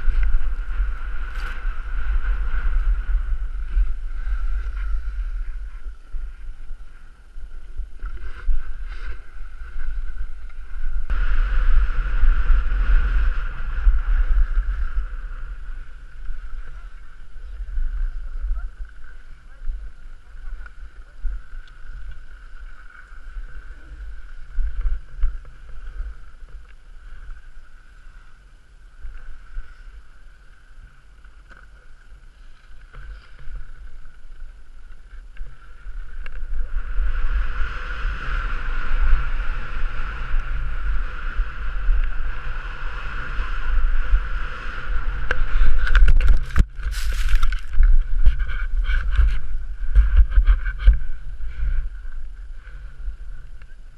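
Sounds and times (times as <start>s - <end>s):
skis scraping on packed snow: 0.0s - 28.4s, 29.2s - 53.6s
wind buffeting microphone: 0.0s - 53.9s
sharp scrapes and knocks: 45.7s - 51.2s.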